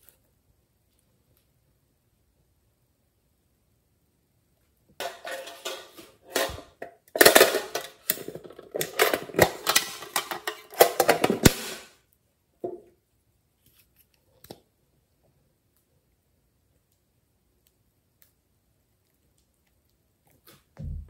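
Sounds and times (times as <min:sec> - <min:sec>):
plastic case clicking and rattling: 0:07.2 - 0:11.6.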